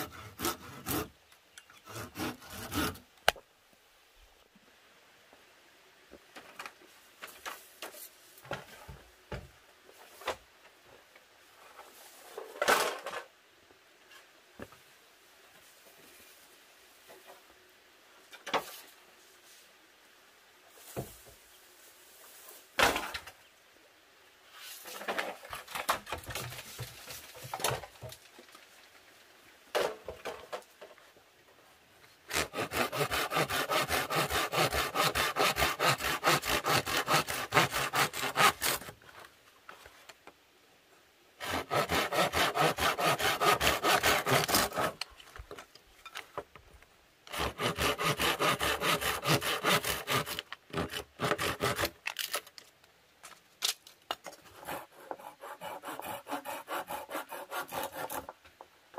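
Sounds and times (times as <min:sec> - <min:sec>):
hand saw cutting bamboo: 0:00.0 - 0:01.1, 0:01.8 - 0:03.0, 0:32.3 - 0:38.9, 0:41.4 - 0:45.0, 0:47.3 - 0:52.4, 0:54.4 - 0:58.3
rustling: 0:20.7 - 0:23.5, 0:24.4 - 0:29.4.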